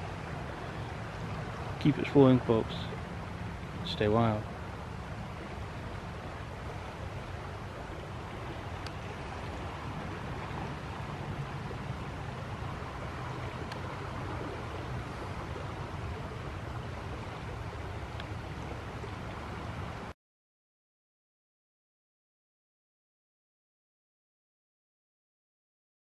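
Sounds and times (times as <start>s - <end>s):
river rushing: 0.0s - 20.1s.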